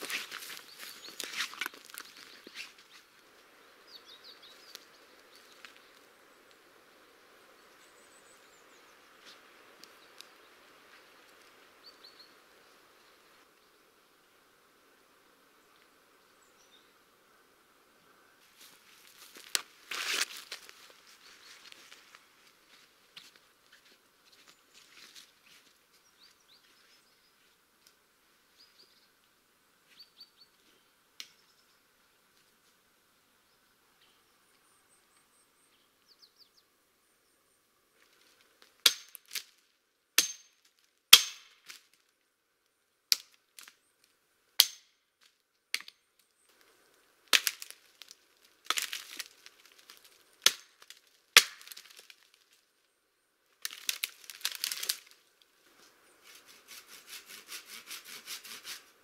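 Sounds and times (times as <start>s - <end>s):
wood crackling: 0.0s - 3.3s, 18.6s - 25.2s, 43.1s - 52.9s, 53.5s - 58.6s
hatchet chopping branches: 38.8s - 39.5s, 40.2s - 41.8s, 44.6s - 45.0s, 45.7s - 46.0s, 47.3s - 52.1s.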